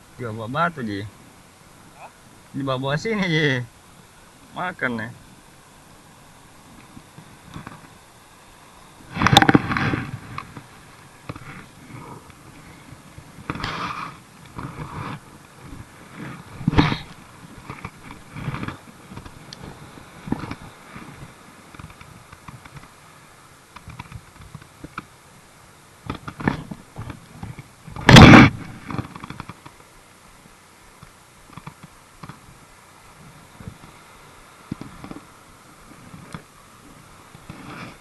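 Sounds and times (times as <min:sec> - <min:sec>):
loud thump: 0:28.0 - 0:28.6.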